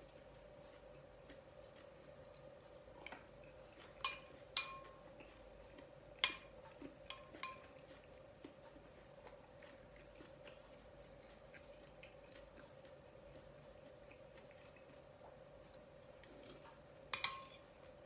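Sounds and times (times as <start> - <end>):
faint steady hum: 0.0 - 18.0
metal spoon clinking glass bowl: 4.0 - 5.0, 7.1 - 7.8, 17.1 - 17.6.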